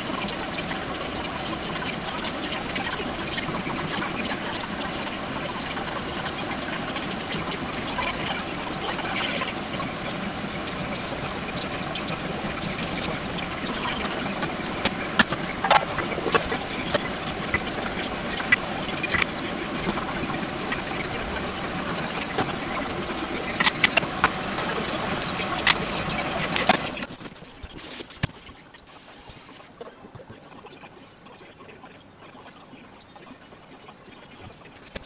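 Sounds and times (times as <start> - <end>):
steady rushing hiss: 0.0 - 35.0
sharp clicks: 28.2 - 33.9.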